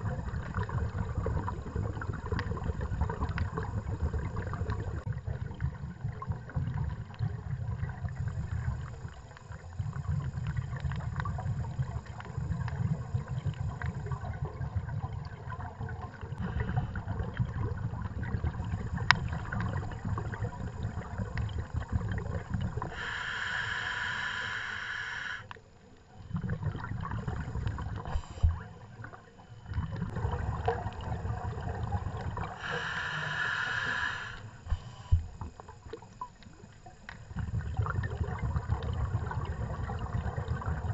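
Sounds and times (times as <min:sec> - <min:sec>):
bubbles gurgling underwater: 0:00.0 - 0:23.1, 0:25.9 - 0:40.9
regulator hissing inhalation: 0:22.9 - 0:25.6, 0:32.5 - 0:35.2.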